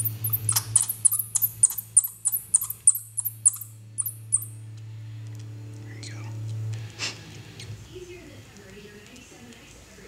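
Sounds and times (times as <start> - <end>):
bat pup high-pitched chirps: 0.0 - 4.6
steady low hum: 0.0 - 10.0.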